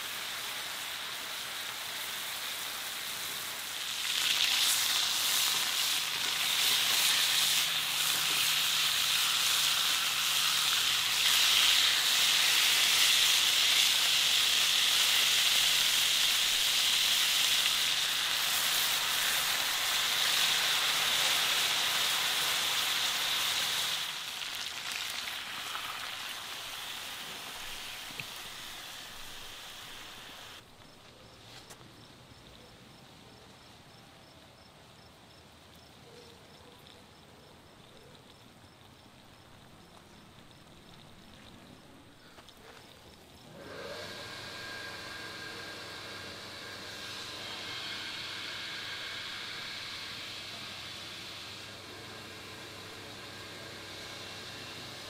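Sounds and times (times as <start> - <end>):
chicken sizzling in a skillet: 0.0 - 30.6, 42.2 - 55.0.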